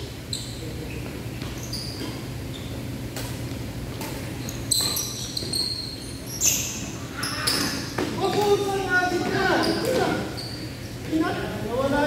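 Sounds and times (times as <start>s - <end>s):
sneaker squeaks on court floor: 0.0s - 8.5s, 9.2s - 10.8s
low hall hum: 0.0s - 12.0s.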